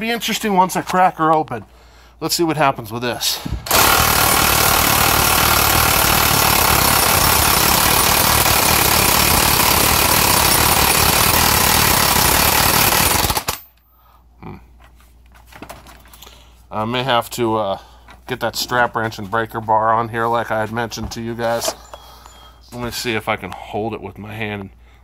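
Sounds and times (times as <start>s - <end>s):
impact wrench hammering: 3.5s - 13.6s.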